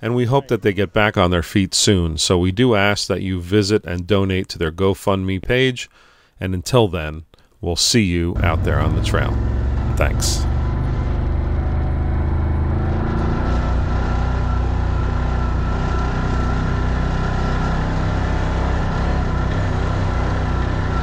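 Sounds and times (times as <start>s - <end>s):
thin steady whine: 8.4s - 21.0s
utility vehicle engines droning: 8.4s - 21.0s.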